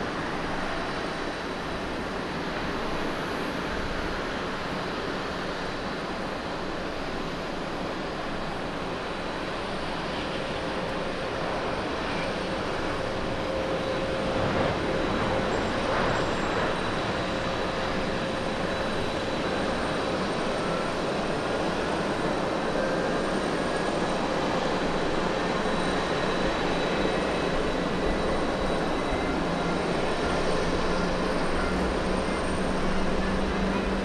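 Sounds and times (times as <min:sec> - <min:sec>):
faint jet engine whine: 0:00.0 - 0:34.0.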